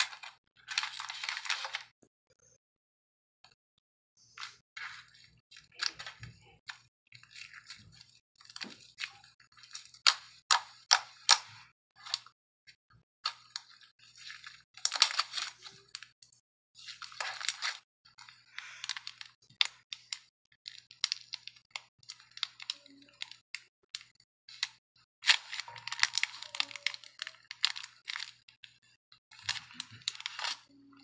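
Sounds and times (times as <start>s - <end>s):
slime crackling and popping: 16.8s - 31.0s.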